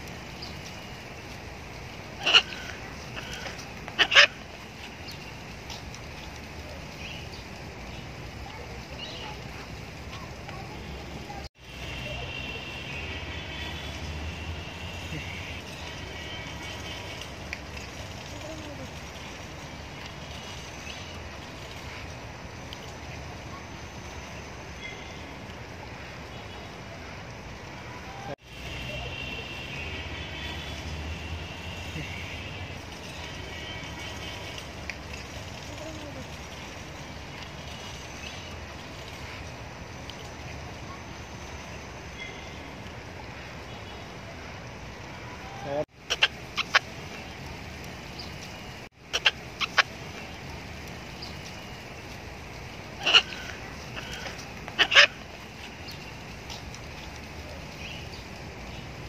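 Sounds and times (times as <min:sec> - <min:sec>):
macaw squawking: 0:02.2 - 0:04.4, 0:46.0 - 0:46.9, 0:49.1 - 0:50.0, 0:53.0 - 0:55.2.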